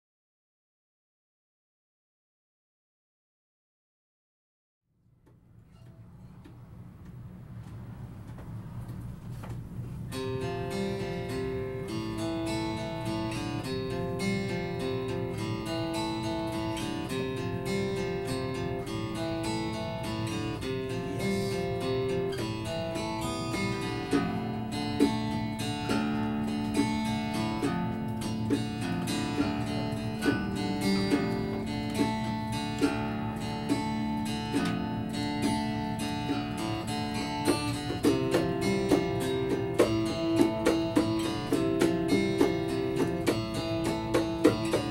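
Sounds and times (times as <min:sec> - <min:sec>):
acoustic guitars playing: 0:05.4 - 0:44.9
hand drum strikes: 0:12.1 - 0:44.9
bongos: 0:21.7 - 0:44.9.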